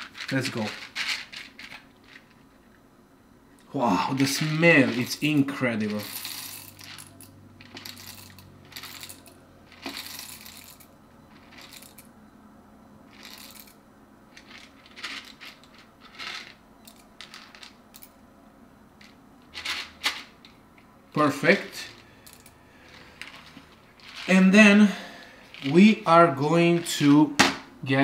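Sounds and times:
hand coffee grinder crunching beans: 0.0 - 2.4, 4.0 - 10.8, 14.4 - 17.6, 23.0 - 24.3.

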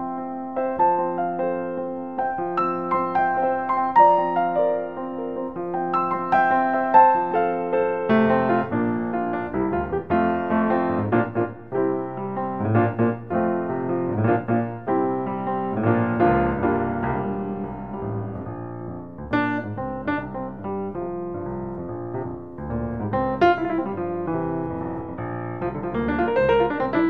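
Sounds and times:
piano melody: 0.0 - 27.0.

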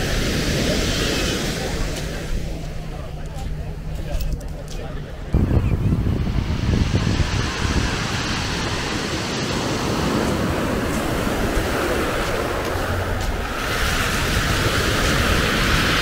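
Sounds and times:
sea waves breaking on shore: 0.0 - 2.9, 6.3 - 16.0.

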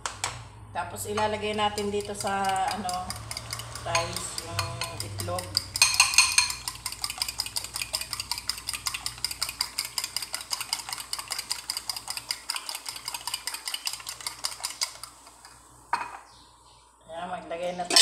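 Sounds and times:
fork clicking against bowl: 1.5 - 15.0.

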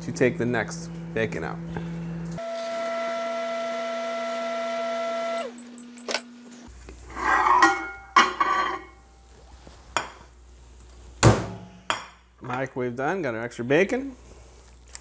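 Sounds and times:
microwave oven humming: 0.1 - 7.0
plate scraping on glass turntable: 7.1 - 9.0.

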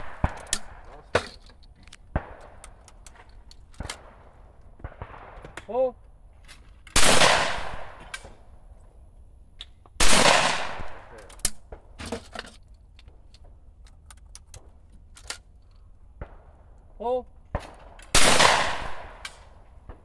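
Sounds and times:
shotgun shots with echo: 7.0 - 8.0, 10.0 - 11.1, 17.5 - 19.2.

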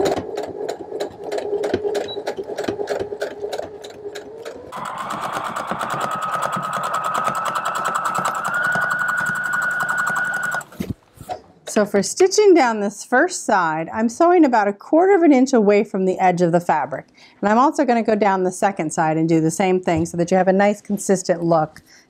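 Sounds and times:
electric sewing machine stitching: 0.0 - 10.8.

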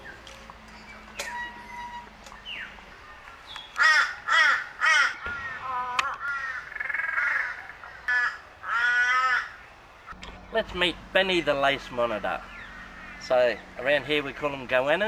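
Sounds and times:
crow cawing: 3.8 - 9.6, 12.5 - 13.7.

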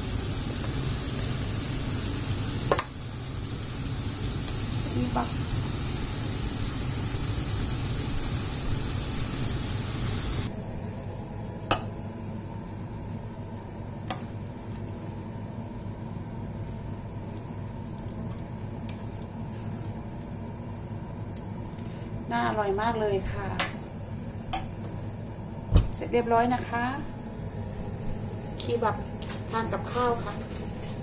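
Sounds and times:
meat sizzling in a pan: 0.0 - 10.5
low steady hum: 0.0 - 31.0.

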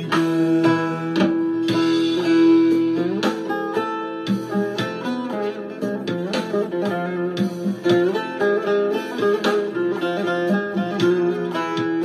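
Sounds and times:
plucked string instrument melody: 0.0 - 12.0.

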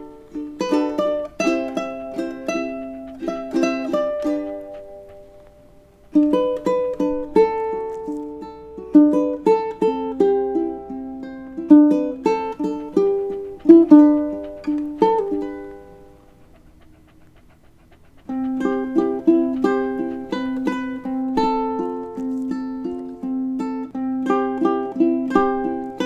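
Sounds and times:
ukulele playing: 0.0 - 5.2, 6.1 - 16.1, 18.3 - 26.0.

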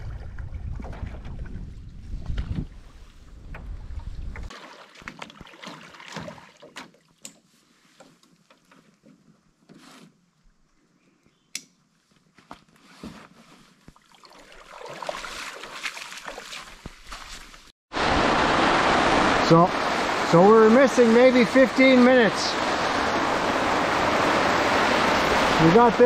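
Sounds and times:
wind buffeting microphone: 0.0 - 4.5
feet wading splashes: 4.5 - 7.2, 14.0 - 17.7.

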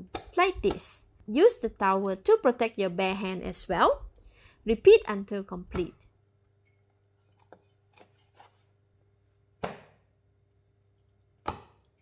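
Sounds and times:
knife chopping on plastic board: 0.0 - 0.9, 9.6 - 10.1, 11.4 - 11.9.

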